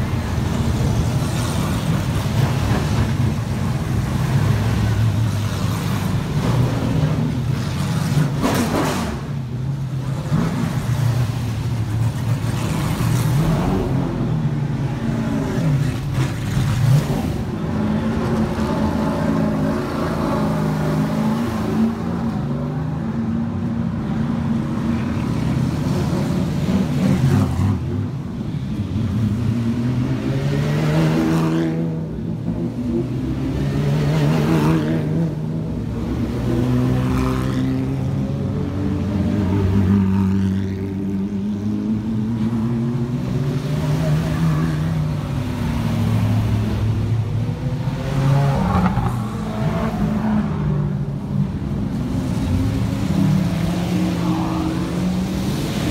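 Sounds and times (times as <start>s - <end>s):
race car engines passing: 0.0s - 55.9s.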